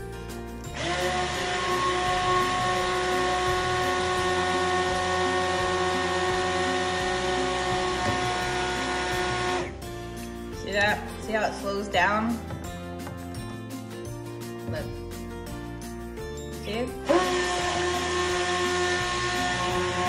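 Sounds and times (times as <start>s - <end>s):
immersion blender motor whine: 0.7s - 9.8s, 17.0s - 20.0s.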